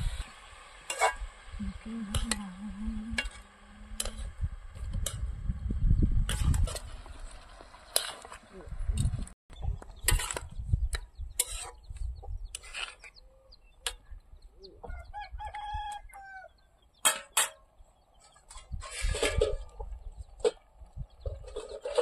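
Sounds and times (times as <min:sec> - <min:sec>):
rooster crowing: 0:14.8 - 0:16.6.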